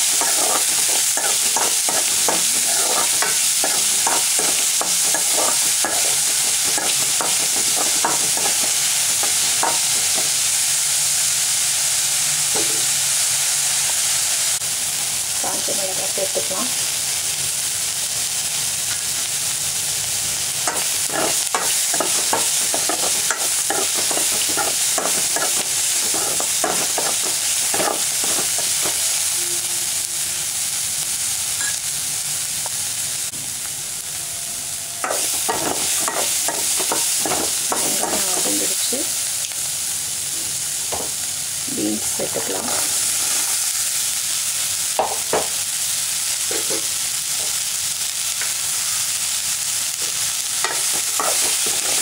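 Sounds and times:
spatula scraping pan: 0:00.0 - 0:10.4, 0:20.7 - 0:29.2, 0:35.0 - 0:38.6, 0:50.7 - 0:52.0
food sizzling in hot oil: 0:00.0 - 0:52.0.

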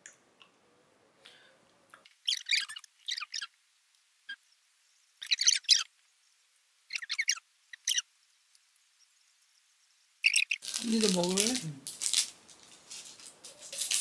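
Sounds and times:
fried chicken crunching: 0:10.6 - 0:14.0.

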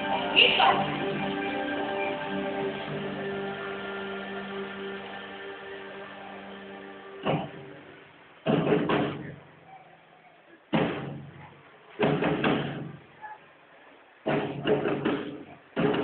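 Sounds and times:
heavy booming drum strikes: 0:07.2 - 0:07.8, 0:08.4 - 0:09.4, 0:10.7 - 0:11.4, 0:12.0 - 0:13.0, 0:14.2 - 0:16.0.

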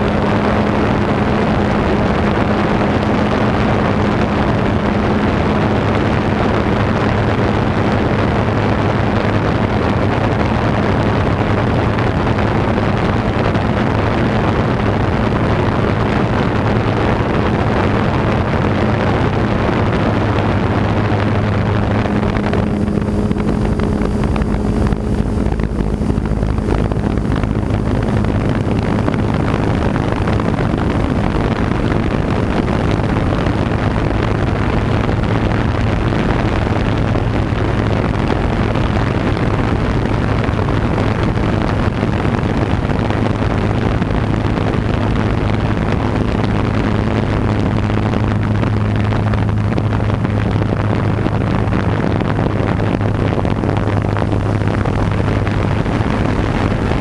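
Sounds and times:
wind on microphone: 0:00.0 - 0:57.0
drone motors humming: 0:16.2 - 0:38.7.

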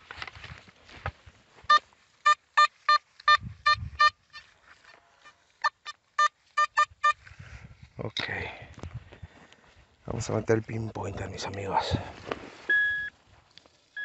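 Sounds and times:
metal detector beeping: 0:01.7 - 0:04.2, 0:05.6 - 0:07.2, 0:12.7 - 0:13.2.

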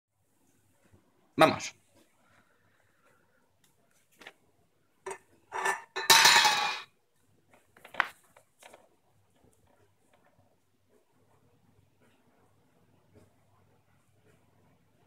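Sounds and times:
can clinking on tile floor: 0:05.0 - 0:06.9
can rolling and clattering: 0:05.1 - 0:06.9.

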